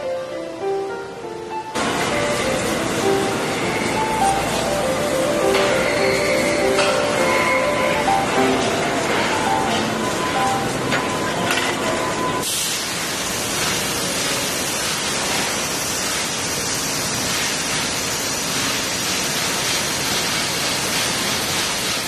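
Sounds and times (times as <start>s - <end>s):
music track: 0.0s - 12.4s
factory machinery running: 0.0s - 22.0s.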